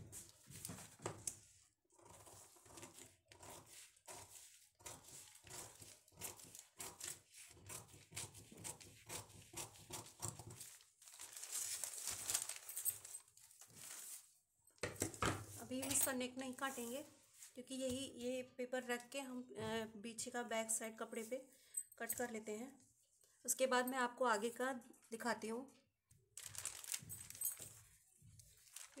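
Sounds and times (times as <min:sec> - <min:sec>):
scissors cutting paper: 0:02.0 - 0:11.6
paper rustling: 0:10.0 - 0:14.4, 0:26.4 - 0:29.0.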